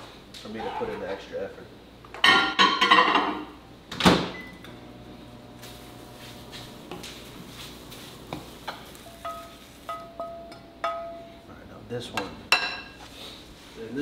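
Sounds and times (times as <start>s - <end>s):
cookware clinking: 2.2s - 3.5s, 8.3s - 11.3s, 12.1s - 13.0s
microwave oven humming: 3.5s - 10.8s.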